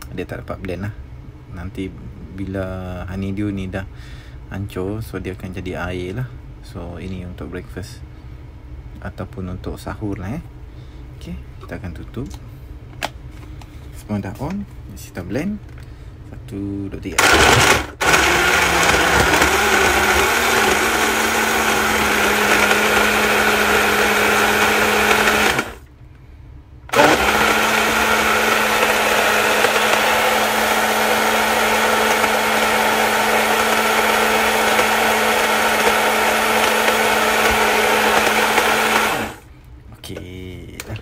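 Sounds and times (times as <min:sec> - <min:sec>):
blender motor running: 0:17.2 - 0:25.8, 0:26.9 - 0:39.4.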